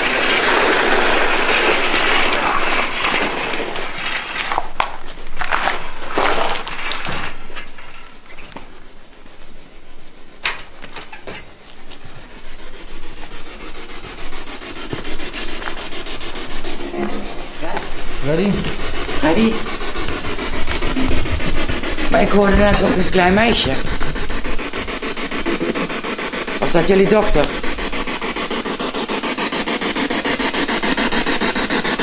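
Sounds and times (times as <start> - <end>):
loud scraping rustle: 0.0 - 32.0
footsteps on gritty concrete: 14.8 - 15.8, 16.8 - 24.5.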